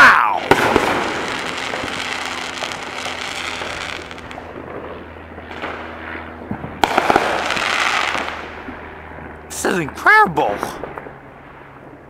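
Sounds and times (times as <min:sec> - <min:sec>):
firework bang: 0:00.4 - 0:04.4, 0:06.5 - 0:08.5
fireworks crackling pops: 0:00.5 - 0:04.5, 0:06.8 - 0:08.4.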